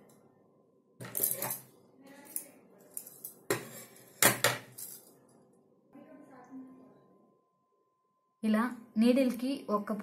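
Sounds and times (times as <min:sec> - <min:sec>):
metal tools clinking on table: 0:01.0 - 0:05.2.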